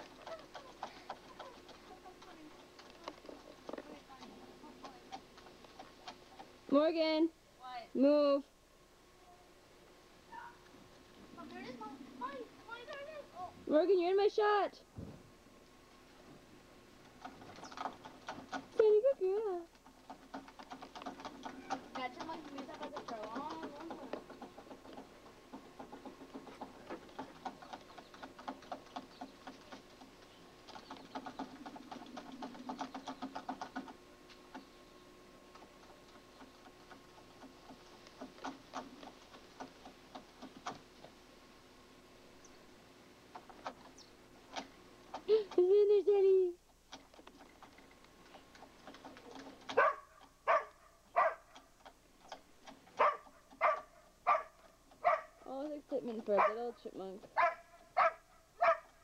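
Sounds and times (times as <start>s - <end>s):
dog scratching at ground: 0.0s - 6.7s, 17.1s - 34.7s, 35.5s - 41.2s, 47.0s - 59.0s
dog barking: 49.7s - 51.6s, 53.0s - 55.4s, 56.4s - 56.7s, 57.4s - 59.0s.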